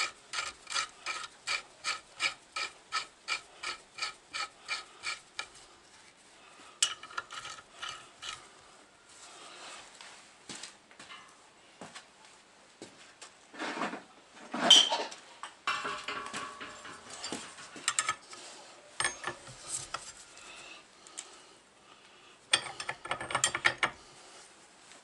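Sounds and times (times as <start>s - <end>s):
spanner clinking on nuts: 0.0s - 5.5s, 6.8s - 8.4s, 15.7s - 18.4s, 19.0s - 20.0s, 22.5s - 24.0s
rasping scrape: 0.0s - 5.7s, 6.8s - 8.6s.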